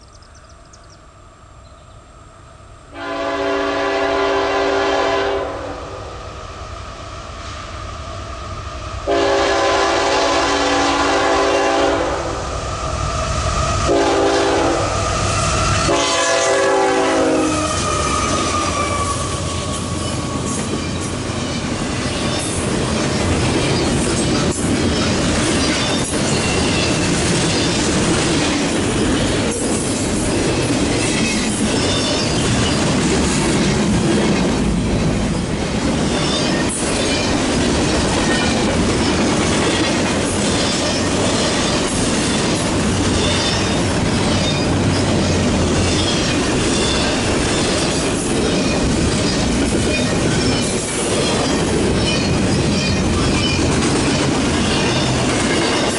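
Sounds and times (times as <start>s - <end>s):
locomotive horn blasts: 2.9s - 5.9s, 9.1s - 12.4s, 13.9s - 15.0s, 15.8s - 19.8s
train wheels rumbling and clattering: 8.5s - 55.9s.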